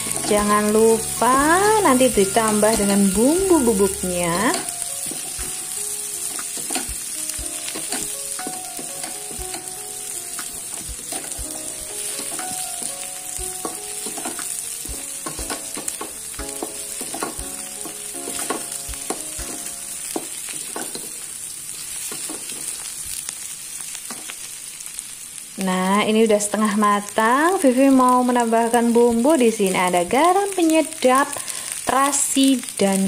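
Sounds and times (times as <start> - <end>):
food sizzling in wok: 0.0 - 33.0
spatula scraping and knocking pan: 4.4 - 9.8, 10.4 - 12.9, 13.5 - 21.3, 22.0 - 22.9.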